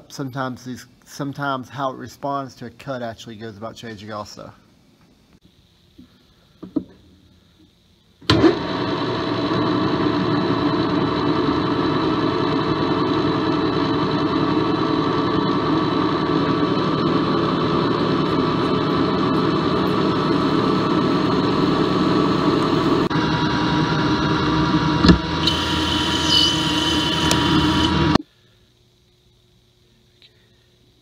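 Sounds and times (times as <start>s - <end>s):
metal lathe humming: 10.8s - 28.2s
drill cutting into aluminium: 16.6s - 28.2s.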